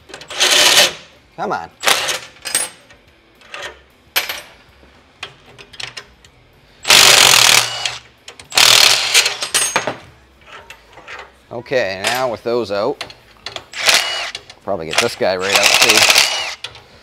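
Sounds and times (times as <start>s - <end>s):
impact wrench hammering: 6.9s - 10.0s, 15.0s - 16.7s.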